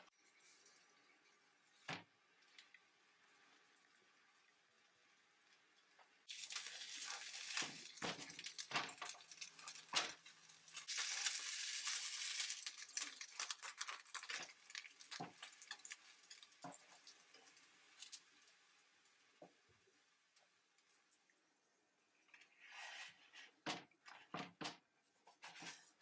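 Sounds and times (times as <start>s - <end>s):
food sizzling in oil: 6.2s - 19.4s
spatula scraping a pan: 22.4s - 23.6s, 25.3s - 26.0s.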